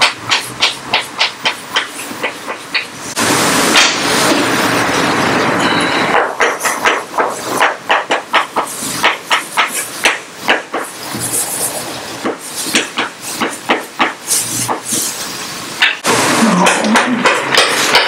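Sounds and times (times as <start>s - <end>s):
chalk tapping and scratching on blackboard: 0.0s - 2.9s, 6.4s - 15.1s.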